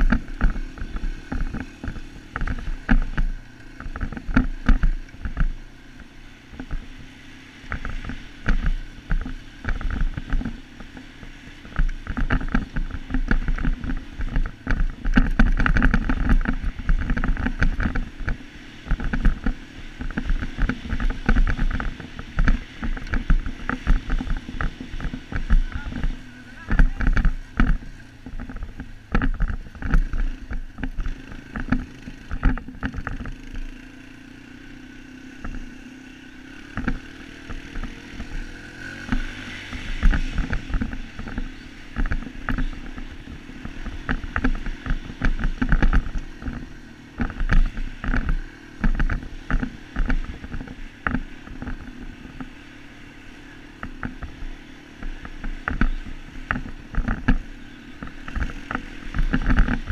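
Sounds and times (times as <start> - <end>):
knocks and rattles from bumps: 0.0 - 5.6, 7.7 - 33.4
dirt bike engine running: 0.0 - 59.9.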